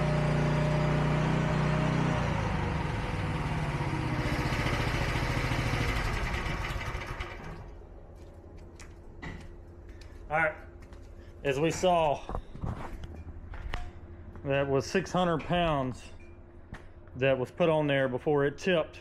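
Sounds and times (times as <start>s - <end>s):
small engine running: 0.0s - 7.8s
footsteps: 8.0s - 14.6s.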